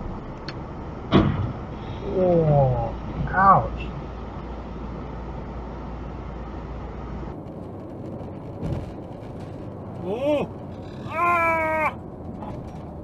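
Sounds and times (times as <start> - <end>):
tyre and wind noise: 4.4 - 13.0.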